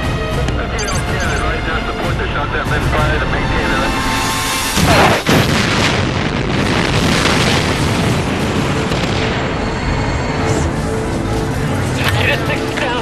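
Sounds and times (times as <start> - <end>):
background music: 0.0 - 5.4, 9.8 - 13.0
dense continuous rumbling: 0.5 - 13.0.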